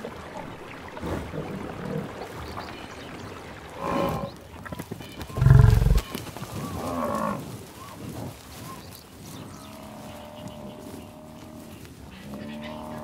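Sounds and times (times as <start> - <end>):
buffalo calling: 5.4 - 6.1.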